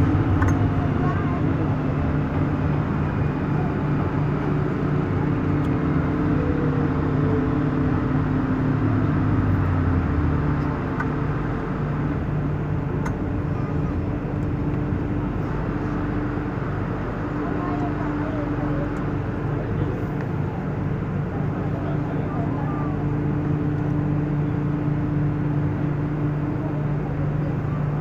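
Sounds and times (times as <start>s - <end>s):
low hum: 0.0s - 28.0s
train wheels rumbling on rail: 0.0s - 28.0s.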